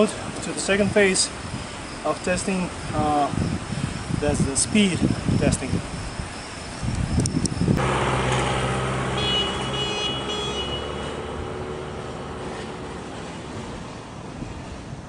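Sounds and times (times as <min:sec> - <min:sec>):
road noise: 0:00.0 - 0:15.0
vehicle engine running: 0:07.8 - 0:13.8.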